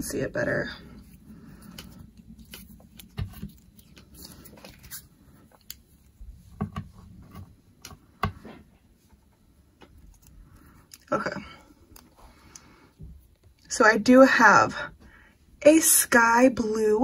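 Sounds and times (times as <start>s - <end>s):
clay kneaded with sticky clicks: 1.0s - 13.7s.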